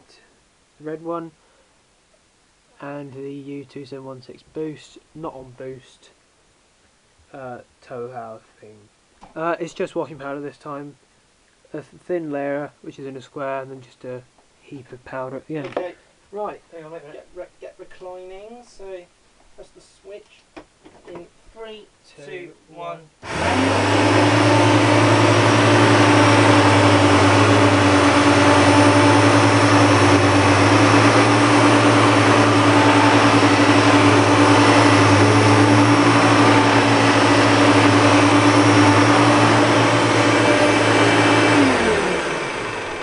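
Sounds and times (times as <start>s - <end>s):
vacuum cleaners running: 23.2s - 43.0s
vacuum motors winding down: 23.2s - 43.0s.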